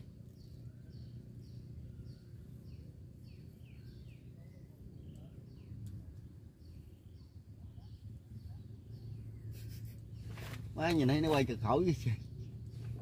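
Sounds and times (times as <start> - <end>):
bird chirping: 0.0 - 13.0
low outdoor rumble: 0.0 - 13.0
faint click: 5.1 - 6.3.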